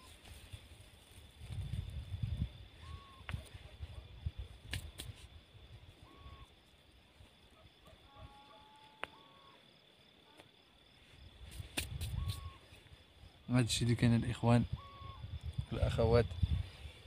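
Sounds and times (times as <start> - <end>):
wind rumble on microphone: 0.0 - 6.5, 11.2 - 13.0, 13.7 - 17.0
thin high insect-like tone: 8.4 - 13.7
hands patting soil: 11.4 - 12.6.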